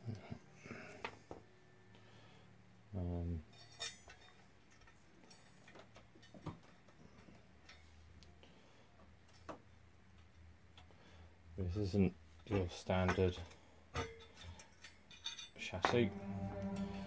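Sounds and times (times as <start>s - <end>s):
metal panels clicking and clinking: 3.4s - 7.9s, 12.4s - 16.1s.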